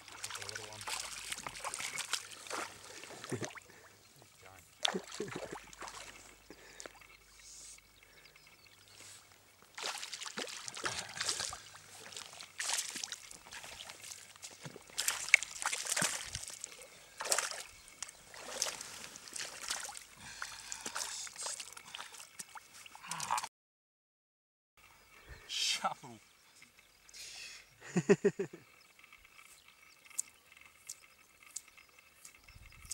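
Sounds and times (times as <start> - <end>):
shallow water splashing: 0.0 - 7.4, 8.8 - 23.3.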